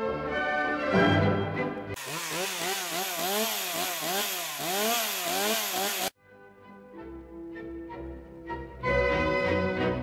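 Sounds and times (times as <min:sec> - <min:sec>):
chainsaw engine revving: 0:02.0 - 0:06.2.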